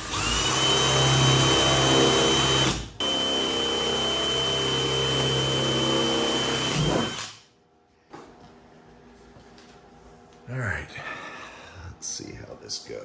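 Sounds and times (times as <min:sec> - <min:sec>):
cordless drill running: 0:00.0 - 0:07.4.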